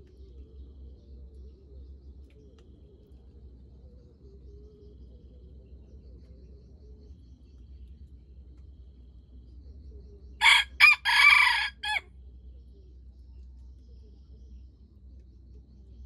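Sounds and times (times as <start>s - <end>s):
rooster crowing: 10.4s - 12.0s.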